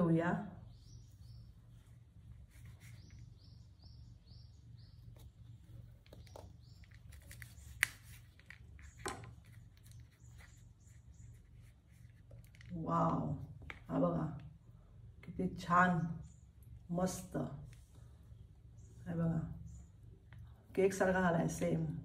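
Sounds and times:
small bird chirping: 0:00.6 - 0:12.2.

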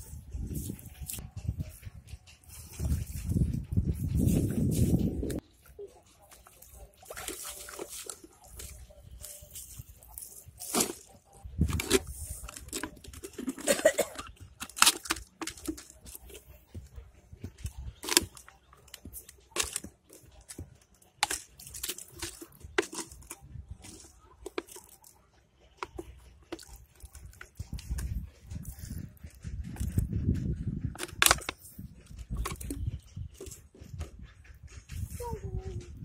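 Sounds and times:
plastic bottle crackling: 0:06.5 - 0:25.2, 0:25.8 - 0:28.2, 0:30.9 - 0:33.6.

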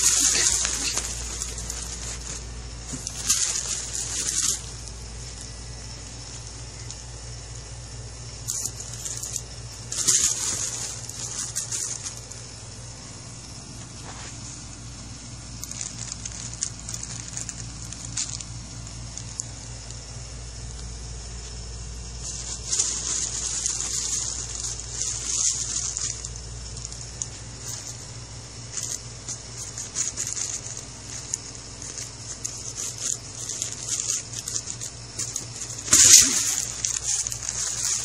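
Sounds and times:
cat scrambling: 0:00.0 - 0:04.9
nylon tunnel rustling and scraping: 0:00.0 - 0:07.2, 0:08.4 - 0:19.7, 0:20.6 - 0:38.0.

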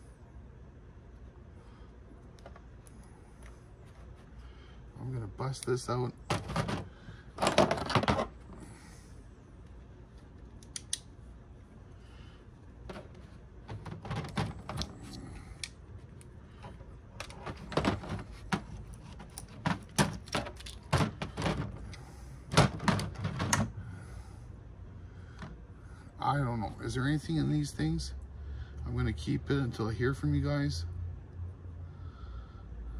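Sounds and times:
pliers clicking on metal part: 0:10.6 - 0:11.1.

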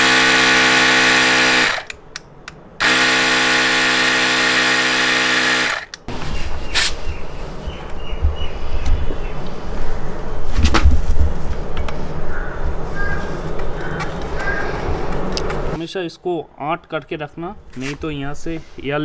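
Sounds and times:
compressor motor humming: 0:00.0 - 0:02.0, 0:02.8 - 0:06.1.

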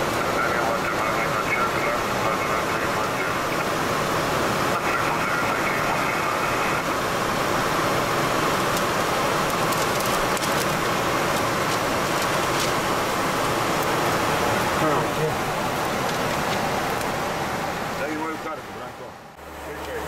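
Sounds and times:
airplane cockpit noise: 0:00.0 - 0:20.0
paper charts rustling: 0:09.5 - 0:12.9.

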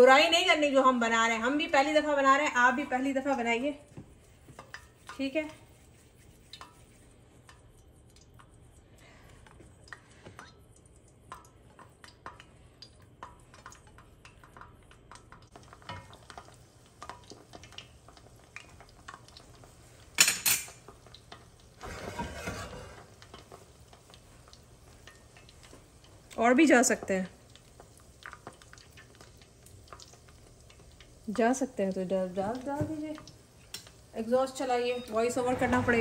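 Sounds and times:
metal spoon scraping a pan: 0:21.8 - 0:23.3.

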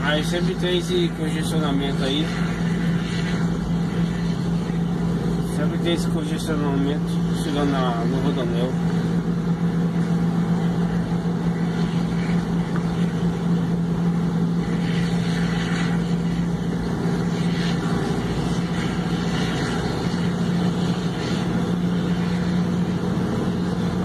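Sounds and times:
engine hum inside car: 0:00.0 - 0:24.0.

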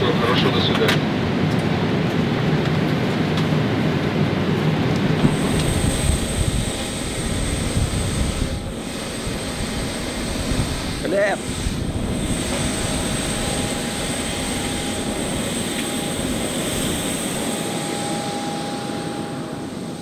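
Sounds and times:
jet cabin hum and rumble: 0:00.0 - 0:20.0
outdoor jet noise: 0:00.0 - 0:20.0
thin high whine: 0:05.2 - 0:20.0.

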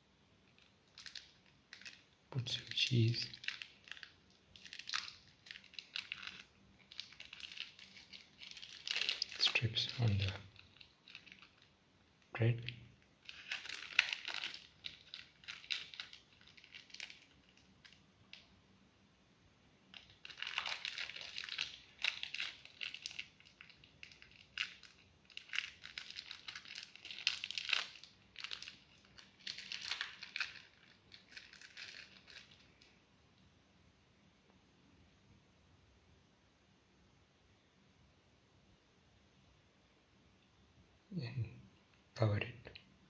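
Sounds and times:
plastic wrapping crinkling: 0:00.4 - 0:18.5, 0:19.9 - 0:33.0.

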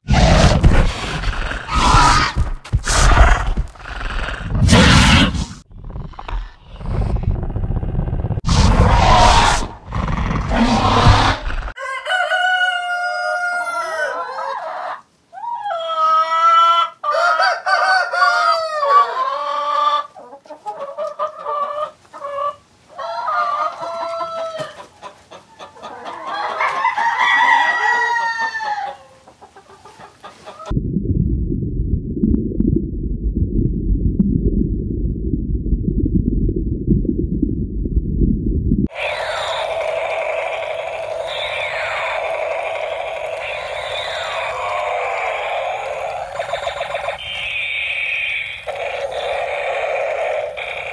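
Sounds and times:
rough roar-like bursts: 0:00.1 - 0:11.8
rooster crowing: 0:11.8 - 0:20.0, 0:26.2 - 0:29.2
steady low rumble: 0:30.7 - 0:38.9.

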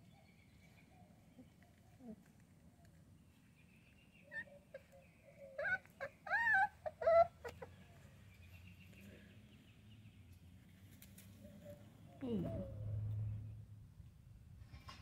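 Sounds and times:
puppies whining: 0:04.2 - 0:07.8.

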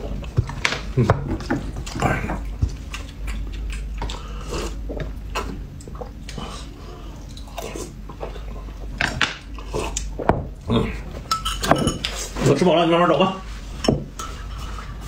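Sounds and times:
chewing: 0:01.8 - 0:08.9.

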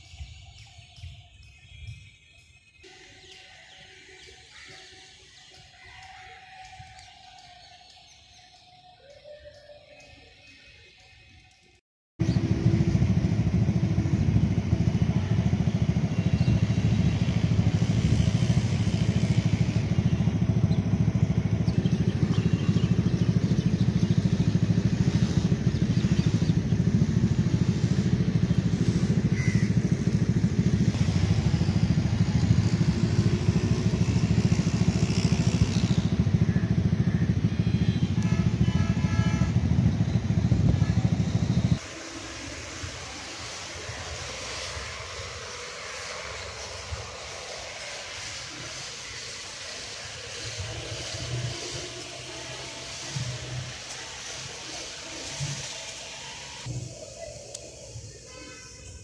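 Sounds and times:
engine running: 0:12.2 - 0:59.0.

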